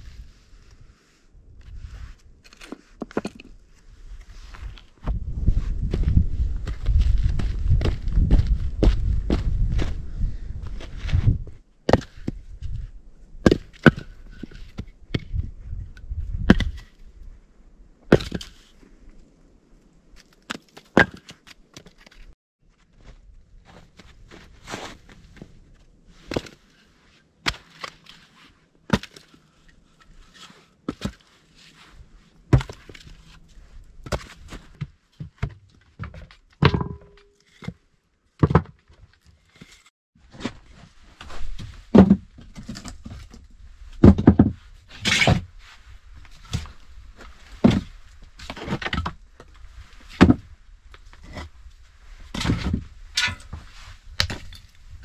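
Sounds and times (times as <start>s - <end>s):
logs knocking on wooden boards: 34.0s - 37.8s, 41.9s - 43.2s, 44.0s - 44.6s.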